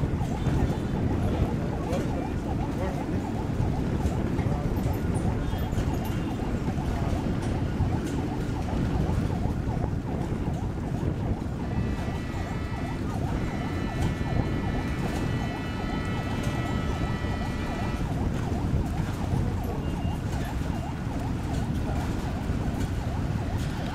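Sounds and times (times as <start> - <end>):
warbling siren: 0.0 - 23.9
steady horn tone: 11.6 - 18.2.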